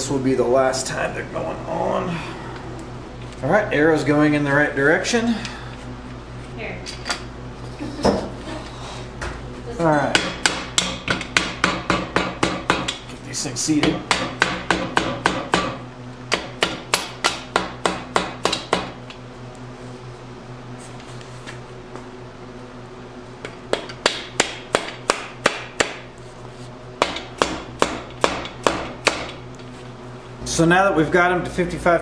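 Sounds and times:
mallet knocking on metal: 0:10.1 - 0:12.9.

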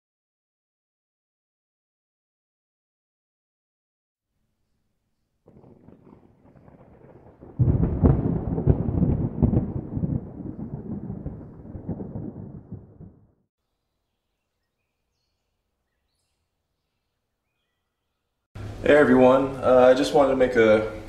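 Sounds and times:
deep rumble with crackles: 0:05.5 - 0:13.4.

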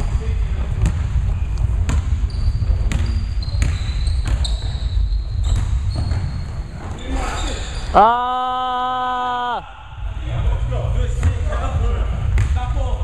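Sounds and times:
sneakers squeaking: 0:00.8 - 0:08.0
basketball bouncing on hardwood: 0:01.8 - 0:04.6
low rumble of hall: 0:04.3 - 0:13.0.

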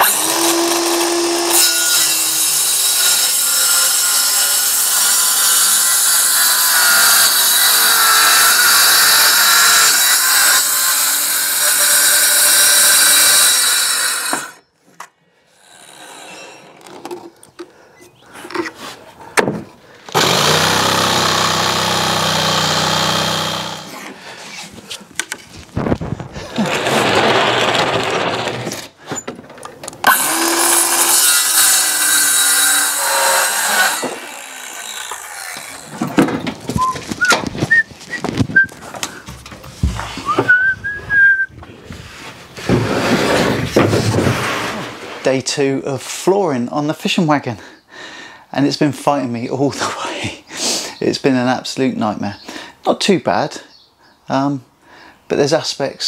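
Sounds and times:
circular saw cutting plywood: 0:00.0 - 0:14.6, 0:15.6 - 0:16.8, 0:20.1 - 0:24.2, 0:26.5 - 0:28.9, 0:30.0 - 0:37.8
knocks and handling sounds: 0:16.6 - 0:19.8, 0:35.5 - 0:40.9.

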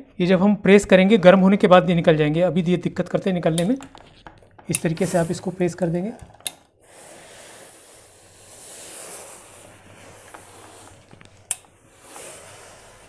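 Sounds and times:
pressing iron hissing on cloth: 0:05.0 - 0:05.6, 0:06.8 - 0:11.1, 0:11.8 - 0:13.0.

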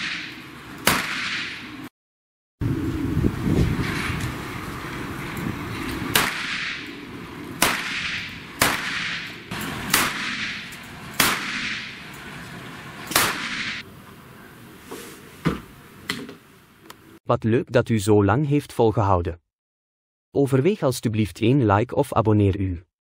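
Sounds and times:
handgun shots with echo: 0:00.0 - 0:01.7, 0:06.1 - 0:06.9, 0:07.6 - 0:12.1, 0:13.1 - 0:13.8.

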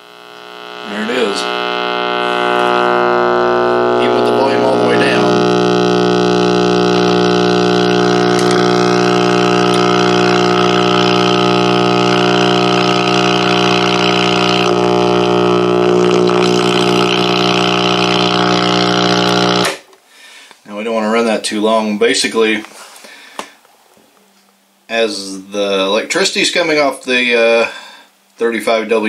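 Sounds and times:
loud radio hum: 0:00.0 - 0:19.8.

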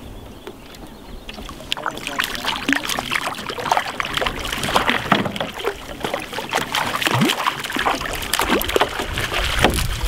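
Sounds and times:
fish splashing at surface: 0:01.3 - 0:10.0
landing net splashing water: 0:01.3 - 0:10.0.

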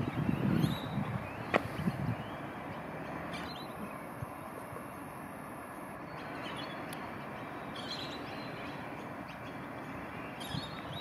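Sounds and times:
outdoor background noise: 0:00.0 - 0:11.0
faint bird chirps: 0:06.0 - 0:11.0.

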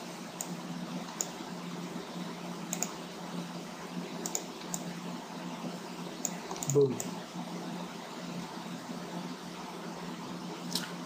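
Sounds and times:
low steady hum: 0:00.0 - 0:11.0
computer mouse clicks: 0:00.4 - 0:01.4, 0:02.7 - 0:03.0, 0:04.2 - 0:04.9, 0:06.2 - 0:07.1.

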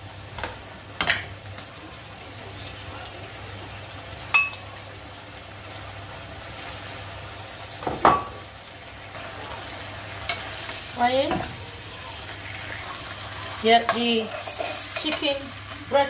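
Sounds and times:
faint oil sizzling: 0:00.0 - 0:16.0
metal spoon scraping a frying pan: 0:13.9 - 0:15.3.

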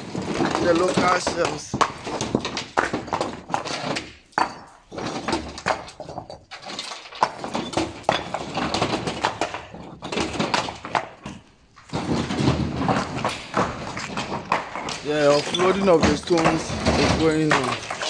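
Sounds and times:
stone slabs clattering: 0:00.0 - 0:18.0.

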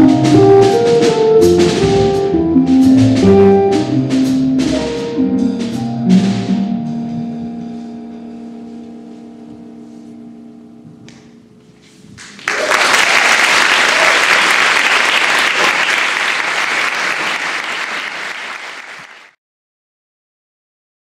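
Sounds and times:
audience applause: 0:12.2 - 0:19.4.

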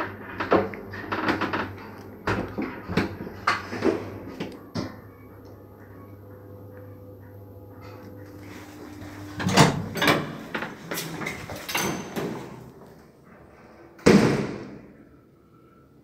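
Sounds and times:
elevator doors clattering: 0:08.8 - 0:12.8
elevator doors banging shut: 0:09.2 - 0:12.6.

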